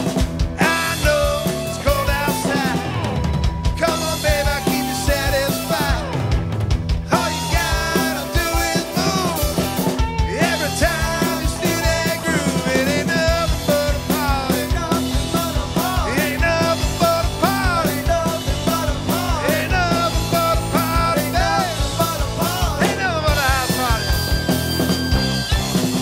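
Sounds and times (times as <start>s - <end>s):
rock band playing live: 0.0s - 26.0s
harmonica playing: 19.2s - 26.0s.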